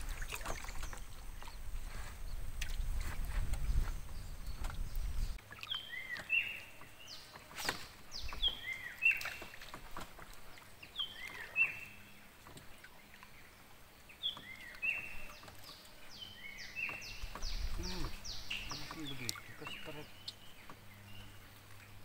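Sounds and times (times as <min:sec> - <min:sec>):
bird singing whistled notes: 0:03.6 - 0:07.2.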